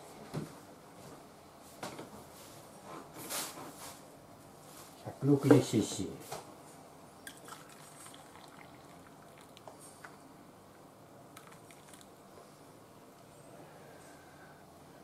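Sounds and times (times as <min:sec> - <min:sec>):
water pouring into metal cup: 0:07.3 - 0:09.7.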